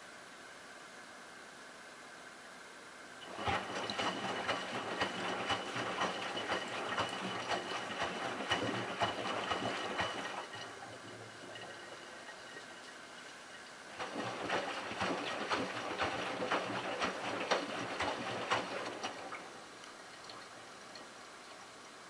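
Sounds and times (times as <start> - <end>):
washing machine motor whine: 3.2 - 13.2, 13.9 - 21.0
water sloshing in washing machine: 3.2 - 21.8.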